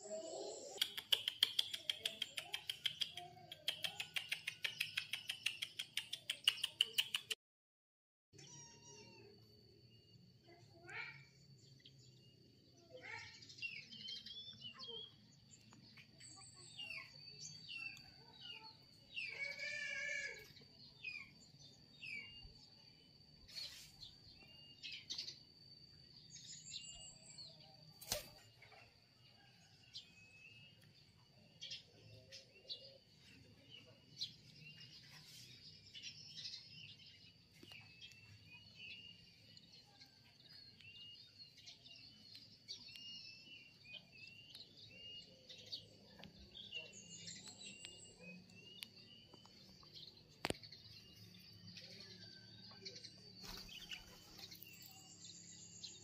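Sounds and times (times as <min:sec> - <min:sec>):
small birds chirping: 0:00.0 - 0:07.4, 0:08.3 - 0:56.0
sharp click: 0:00.8 - 0:07.4
kitten meow: 0:08.4 - 0:09.3.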